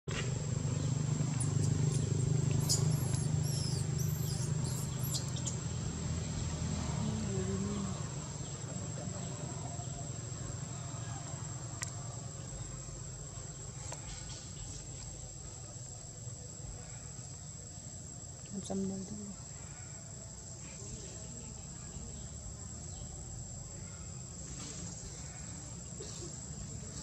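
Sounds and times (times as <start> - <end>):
insect drone: 0.1 - 27.0
high twittering chirps: 0.7 - 6.4.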